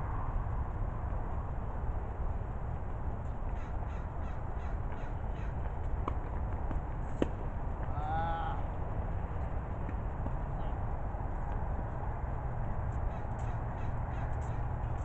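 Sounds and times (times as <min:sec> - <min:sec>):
crow cawing: 0:03.6 - 0:05.6, 0:13.1 - 0:14.6.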